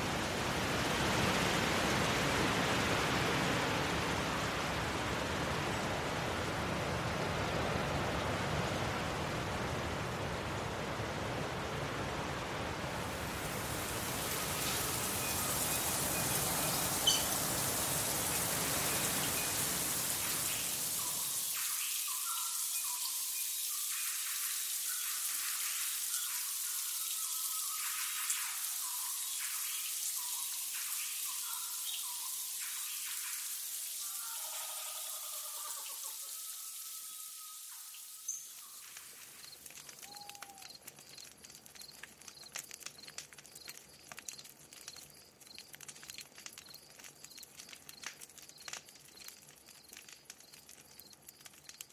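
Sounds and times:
high hiss: 0:13.1 - 0:34.3.

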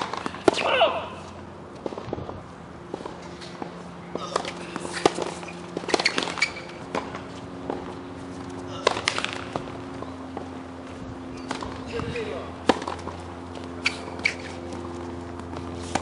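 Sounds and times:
tennis ball hit by rackets: 0:00.0 - 0:01.1, 0:02.8 - 0:10.6, 0:11.4 - 0:16.0.

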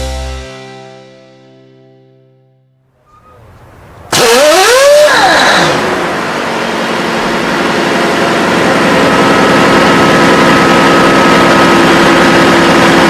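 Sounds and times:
diesel engine idling: 0:03.3 - 0:13.0
thin steady whine: 0:05.8 - 0:13.0.

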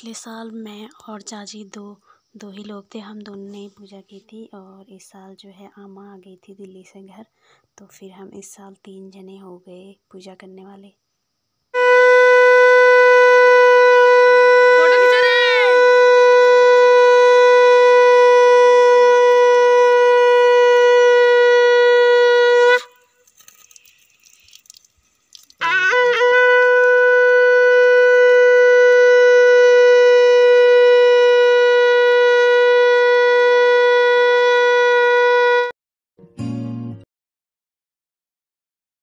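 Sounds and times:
conch shell blasts: 0:11.8 - 0:23.2, 0:25.6 - 0:35.7.

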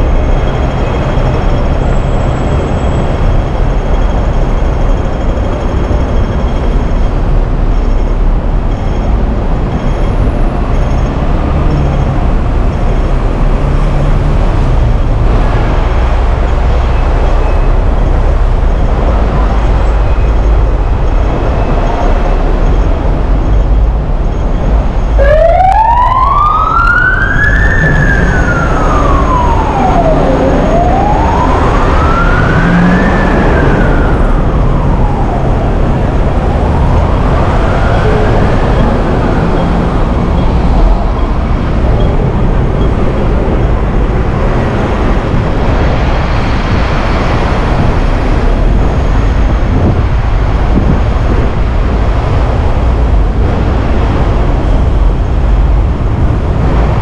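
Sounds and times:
low traffic rumble: 0:00.0 - 0:57.0
emergency siren wailing: 0:24.7 - 0:57.0.

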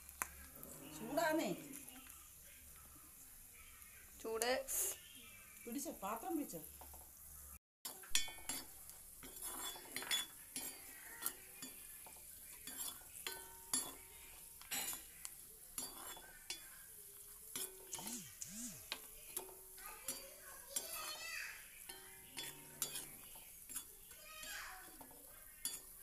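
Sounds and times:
faint sizzle: 0:00.0 - 0:26.0
ladle scraping metal pan: 0:08.2 - 0:11.8, 0:15.8 - 0:16.3, 0:21.8 - 0:26.0.

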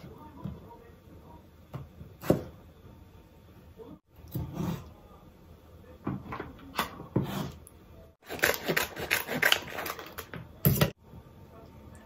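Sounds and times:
scissors cutting plastic pouch: 0:08.2 - 0:10.3.

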